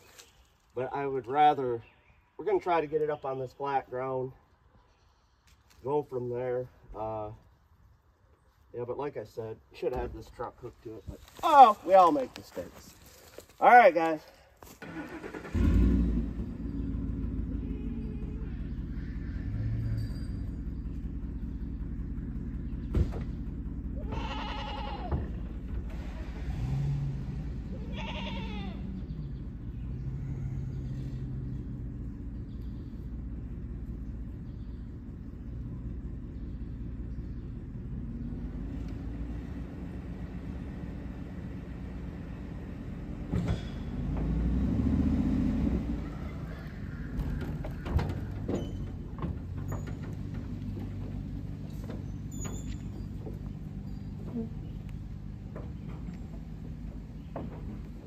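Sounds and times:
truck engine running: 0:14.8 - 0:58.0
trailer knocks and rattles: 0:19.5 - 0:26.4, 0:43.0 - 0:44.8, 0:46.0 - 0:58.0
cow calling: 0:24.0 - 0:25.2, 0:27.8 - 0:28.9.

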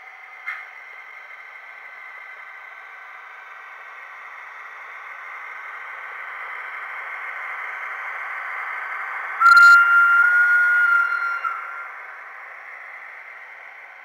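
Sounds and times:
model train wheels and motor hiss: 0:00.0 - 0:14.0
loud high-pitched tone: 0:09.4 - 0:12.1.

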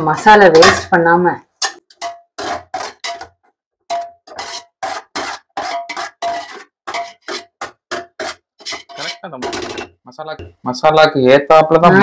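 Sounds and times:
metal spoon scraping metal pan: 0:00.0 - 0:01.0, 0:01.6 - 0:10.0.

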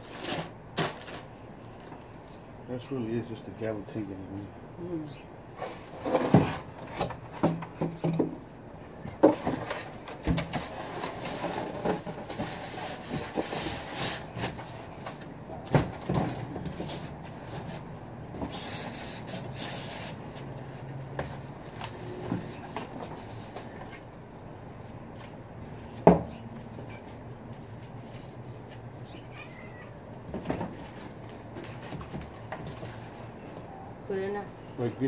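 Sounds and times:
foam and cardboard scraping: 0:00.0 - 0:01.3, 0:05.6 - 0:08.0, 0:09.2 - 0:24.0.

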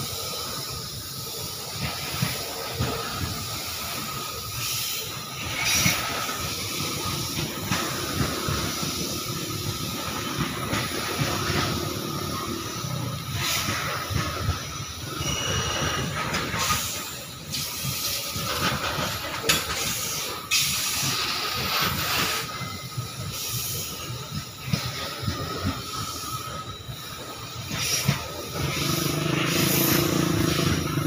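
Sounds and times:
steel wheels rumbling on rail: 0:00.0 - 0:31.0
thin steady squeal: 0:14.8 - 0:16.2.

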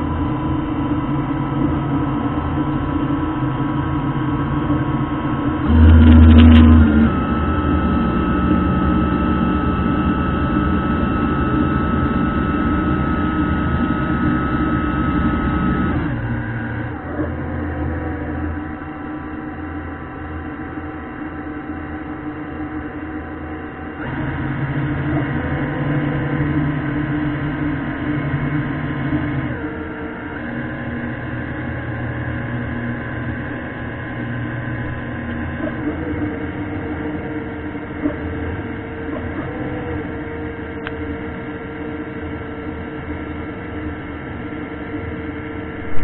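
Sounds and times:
electric thrusters humming underwater: 0:04.2 - 0:19.2, 0:45.3 - 0:46.0.

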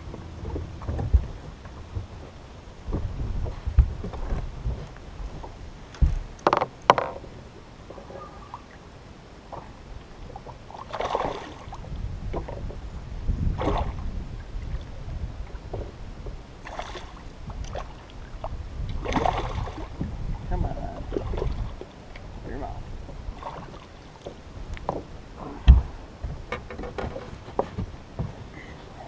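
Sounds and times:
wind rumble on microphone: 0:00.0 - 0:29.0
water splashing: 0:07.9 - 0:12.8, 0:13.5 - 0:16.0, 0:16.6 - 0:26.1.

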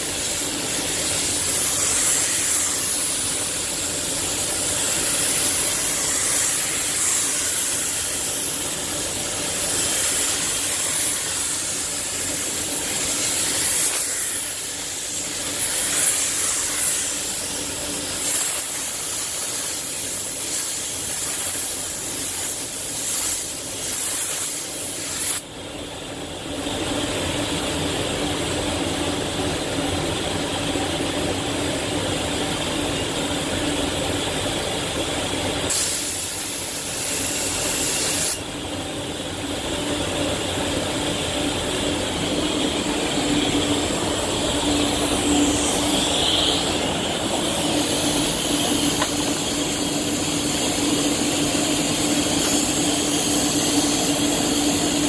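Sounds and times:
air spray gun hissing: 0:00.0 - 0:25.4, 0:35.6 - 0:38.6, 0:39.4 - 0:55.0
steady background drone: 0:36.5 - 0:55.0.

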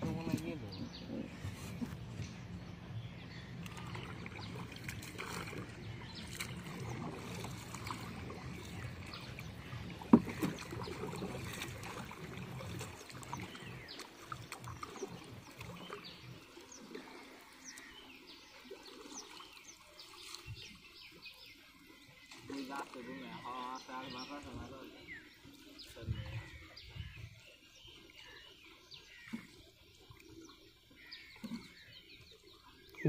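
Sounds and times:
paddle swishing through water: 0:00.0 - 0:33.0
water drips and ticks: 0:03.6 - 0:21.4, 0:28.8 - 0:33.0.

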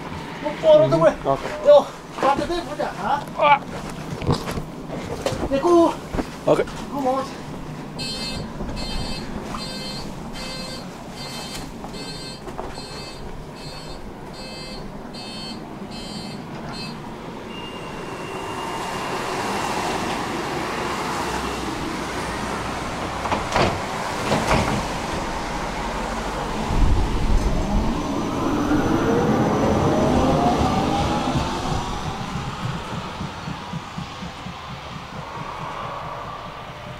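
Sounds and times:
tram running noise: 0:00.0 - 0:36.9
tram door warning beeps: 0:08.0 - 0:19.6, 0:29.8 - 0:36.9
traction motor whine: 0:25.1 - 0:36.9
wheel knocks: 0:31.2 - 0:36.9.

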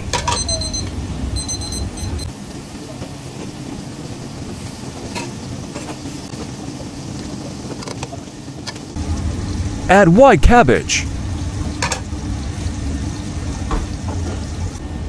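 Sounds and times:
vegetables sizzling in a pan: 0:02.3 - 0:09.9, 0:11.1 - 0:15.0.

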